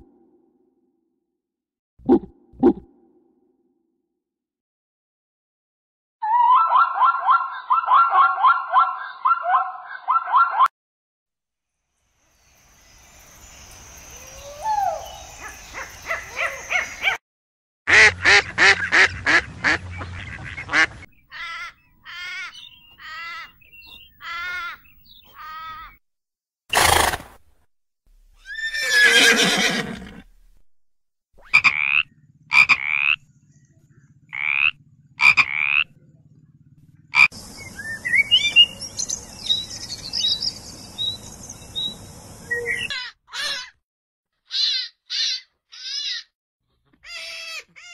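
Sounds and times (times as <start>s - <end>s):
sparrow chirping: 21.1s - 25.8s, 37.2s - 43.1s
horse whinnying: 26.7s - 27.3s, 28.4s - 30.4s
croak-like pulses: 31.4s - 37.7s
sweeping bird chirps: 37.4s - 43.1s.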